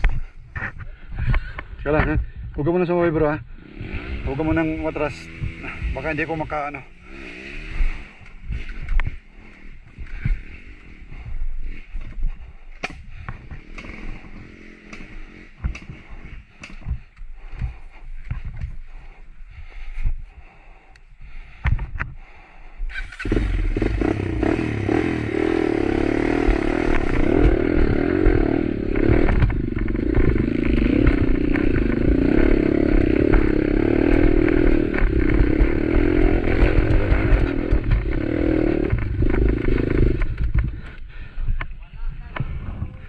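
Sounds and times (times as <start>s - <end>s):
motorcycle engine under load: 22.9s - 41.0s.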